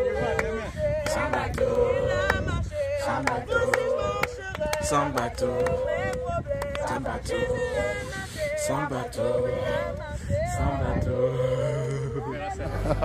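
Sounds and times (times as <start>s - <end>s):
group singing a hymn: 0.0s - 13.0s.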